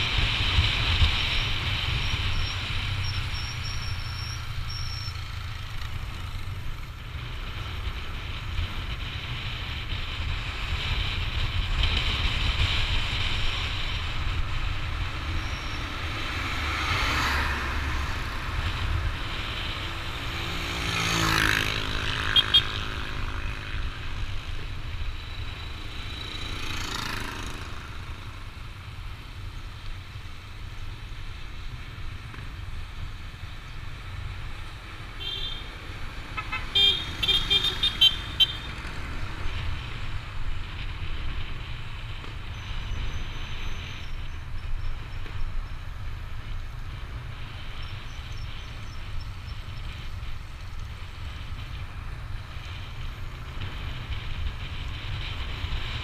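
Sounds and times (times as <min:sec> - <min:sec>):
vehicle passing: 0:14.9 - 0:28.5
wind rumble on microphone: 0:38.8 - 0:56.0.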